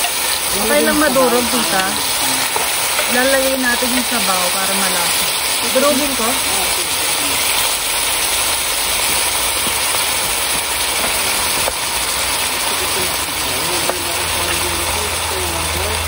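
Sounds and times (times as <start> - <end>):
soup sizzling in a pan: 0.0 - 16.0
wooden spatula tapping a pan: 1.8 - 4.2, 9.6 - 11.8.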